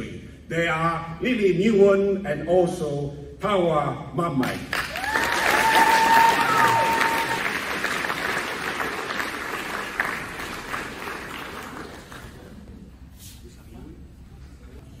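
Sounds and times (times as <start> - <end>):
audience applauding: 4.7 - 12.7
high whoop from crowd: 4.9 - 7.6.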